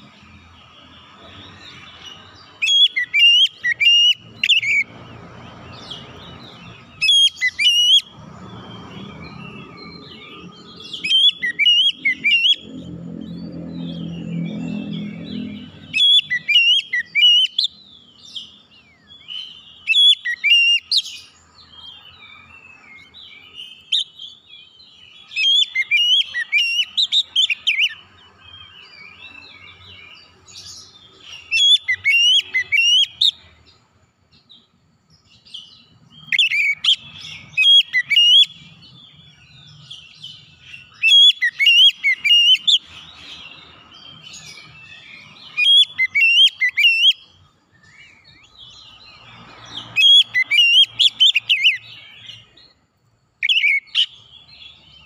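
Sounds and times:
songbird whistling and chattering: 1.2s - 4.9s, 5.8s - 8.2s, 8.9s - 12.8s, 13.4s - 21.2s, 25.2s - 28.0s, 30.6s - 33.4s, 36.2s - 49.0s, 49.7s - 52.6s, 53.4s - 54.8s.

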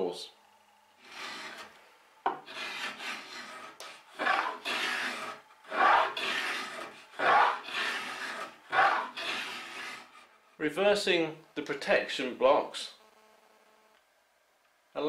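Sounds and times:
file rasping along wooden board: 1.0s - 1.7s, 2.4s - 10.3s.

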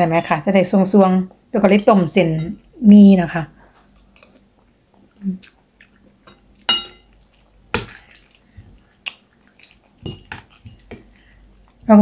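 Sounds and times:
eating sounds: 3.7s - 11.9s
cutlery clinking on ceramic bowl: 6.2s - 7.2s, 10.0s - 11.0s.

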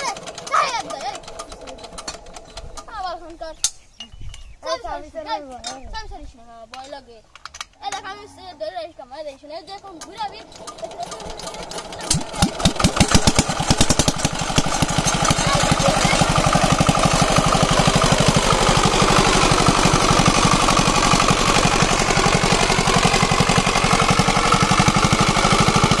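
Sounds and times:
diesel engine running: 9.9s - 26.0s.

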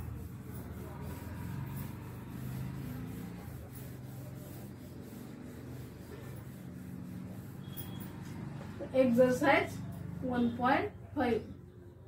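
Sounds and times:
duster rubbing chalkboard: 0.0s - 8.8s.

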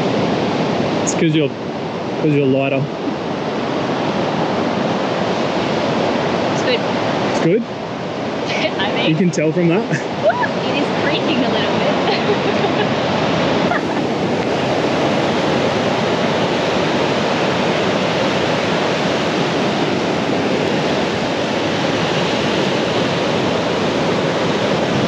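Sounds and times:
surf washing on a beach: 0.0s - 25.0s.

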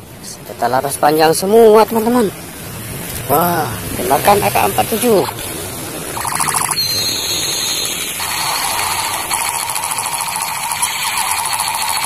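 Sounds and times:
toy gun electronic rattle: 6.2s - 12.0s.

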